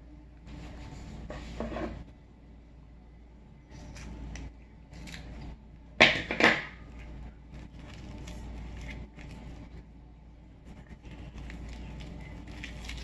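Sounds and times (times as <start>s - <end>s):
rubber rubbing and crinkling: 7.1s - 9.8s.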